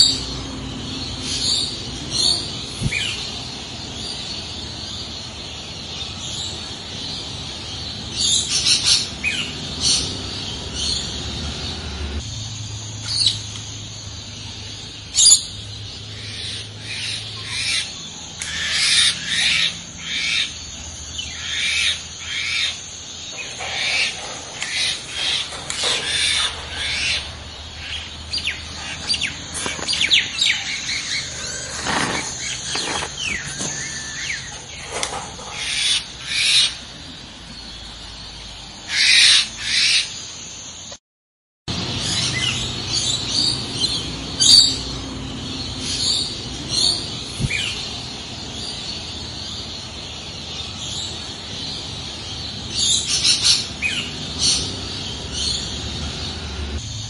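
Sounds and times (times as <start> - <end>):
parrots chirping: 14.6 - 37.0, 41.7 - 57.0.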